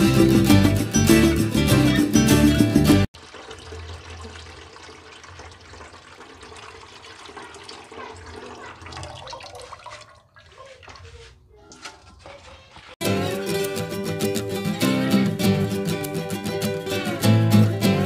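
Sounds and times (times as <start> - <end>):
guitar music: 0.0 - 3.1, 13.0 - 18.0
liquid pouring into metal pot: 3.1 - 10.6.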